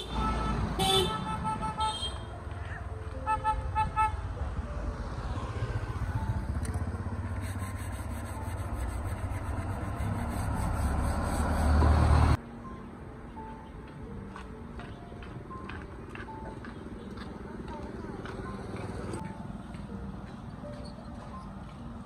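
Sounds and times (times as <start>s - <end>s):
vehicle horn honking: 0.0s - 2.3s, 3.2s - 4.3s
motorbikes and truck rumbling past: 4.1s - 12.4s.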